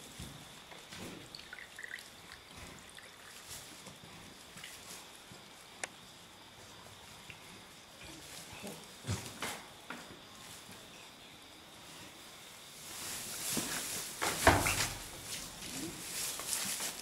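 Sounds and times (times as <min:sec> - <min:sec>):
soft rustling of straw: 0:00.0 - 0:17.0.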